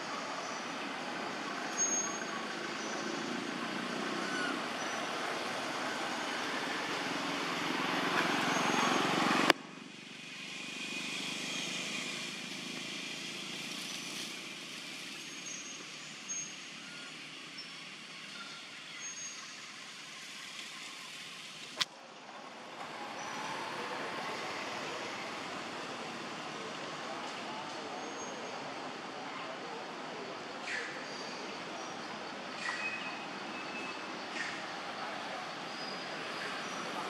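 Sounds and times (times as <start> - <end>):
engine noise: 0.0 - 37.0
outdoor background: 0.0 - 37.0.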